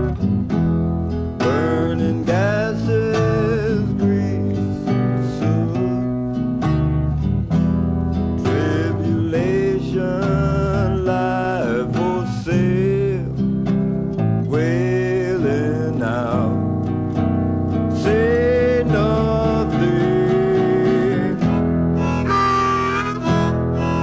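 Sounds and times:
strummed acoustic guitar: 0.0 - 24.0
sliding lead melody: 15.6 - 24.0.

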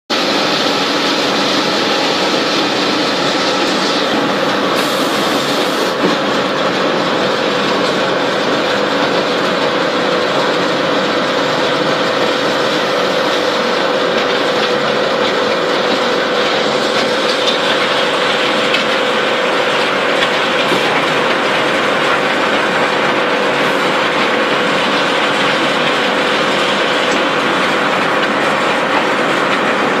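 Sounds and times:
machinery rattling and clattering: 0.1 - 30.0.

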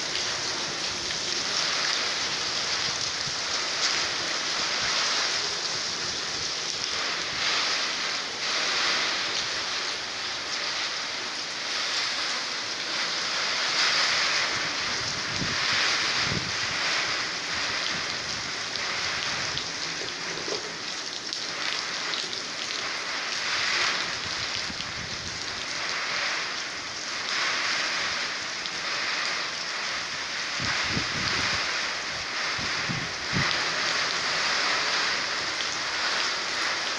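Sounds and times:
heavy rain falling: 0.0 - 36.9
wind buffeting microphone: 14.6 - 19.7, 30.5 - 31.7, 32.4 - 33.6.

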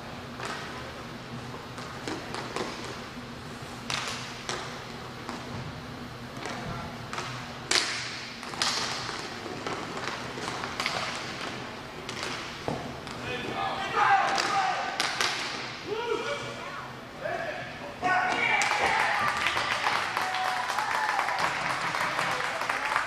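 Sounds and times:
hockey sticks and puck clacking: 0.4 - 0.8, 1.8 - 3.0, 3.9 - 5.4, 6.4 - 15.8.

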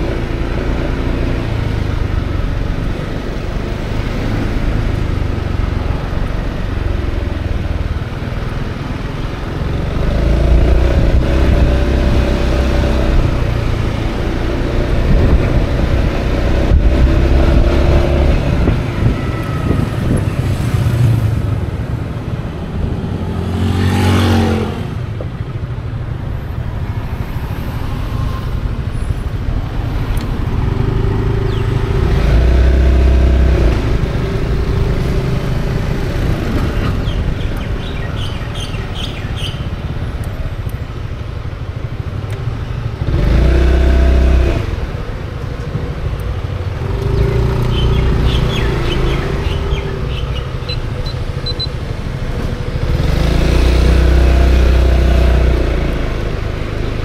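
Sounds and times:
wind rushing on microphone: 10.4 - 23.2.

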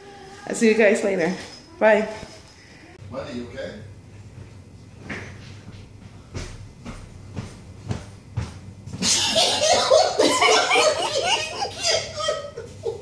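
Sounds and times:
person laughing high-pitched: 9.0 - 13.0.

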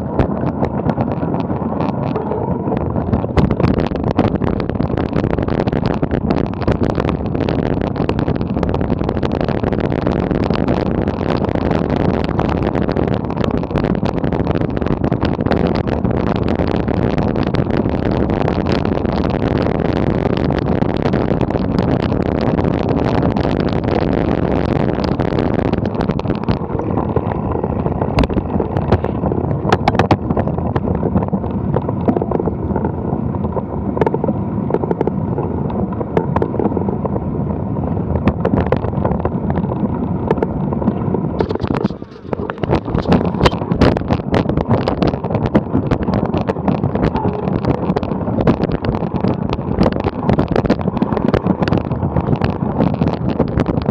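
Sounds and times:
bike rattling over dirt track: 0.0 - 53.9
wind on microphone: 0.0 - 53.9
sharp clicks and knocks: 23.0 - 36.7, 38.2 - 53.9.

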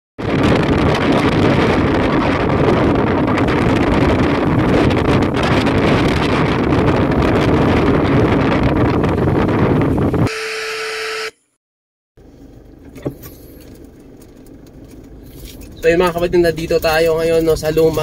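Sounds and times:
wind buffeting microphone: 0.2 - 10.3.

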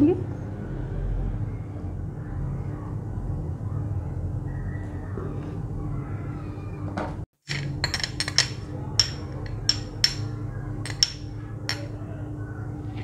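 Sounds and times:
spoon clinking against bowl: 7.5 - 11.9.

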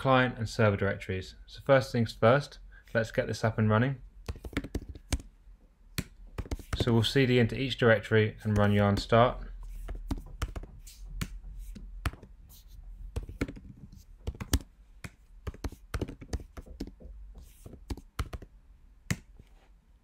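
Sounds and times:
typing on computer keyboard: 4.3 - 5.3, 13.2 - 14.7, 15.5 - 17.0, 17.8 - 18.5.

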